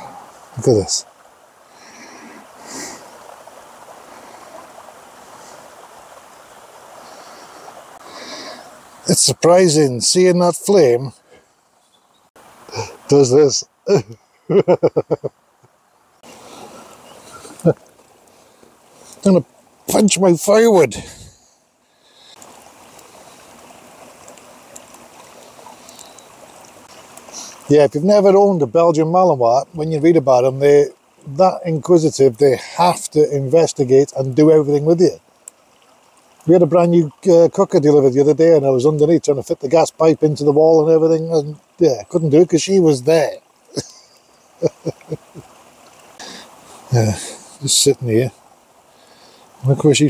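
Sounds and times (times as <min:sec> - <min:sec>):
soft hisses: 0:00.0 - 0:28.3, 0:41.3 - 0:50.0
faint fire crackles: 0:00.0 - 0:50.0
stream babbling: 0:00.0 - 0:50.0.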